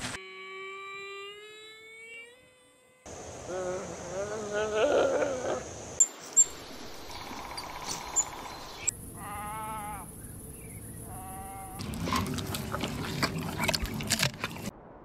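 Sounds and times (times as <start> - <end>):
wavering animal cry: 9.1 - 10.2, 11.0 - 11.8.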